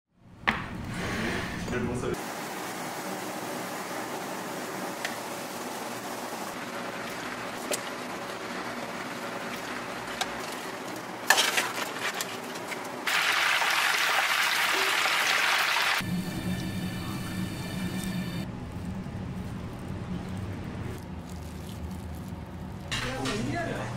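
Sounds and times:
food deep-frying in hot oil: 2.4s - 16.9s
food being tossed and mixed: 18.7s - 23.4s.

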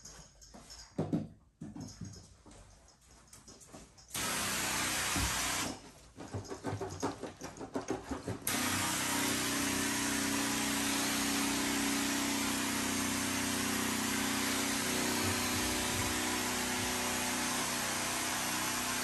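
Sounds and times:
motor pump humming: 4.1s - 5.8s, 8.4s - 19.0s.

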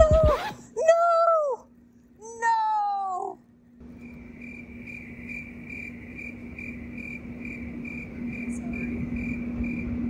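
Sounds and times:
steady low hum: 0.0s - 10.0s
cricket chirping: 3.8s - 10.0s.

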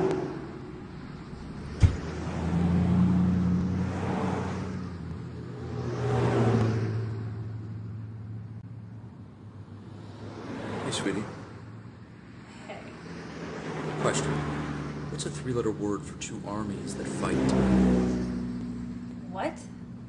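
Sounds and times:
cars passing: 0.0s - 20.0s
engine hum: 0.0s - 20.0s
sharp knock: 1.8s - 2.1s.

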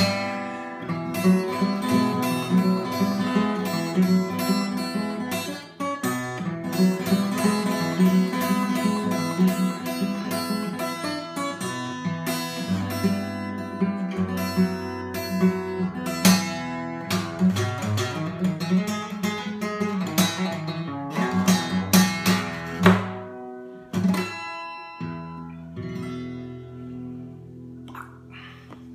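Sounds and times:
fingerpicked acoustic guitar blues: 0.0s - 28.9s.

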